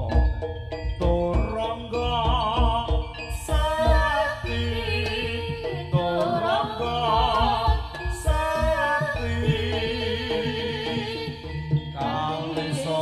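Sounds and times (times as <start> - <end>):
gamelan-style percussion ensemble: 0.0 - 13.0
person singing wavering melody: 0.0 - 13.0.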